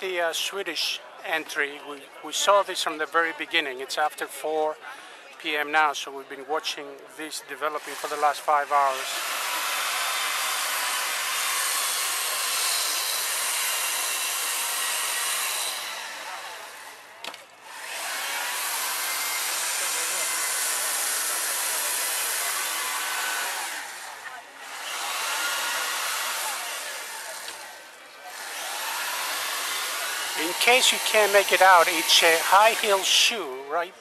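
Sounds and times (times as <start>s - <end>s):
power tool whirring on ice: 7.6s - 33.7s.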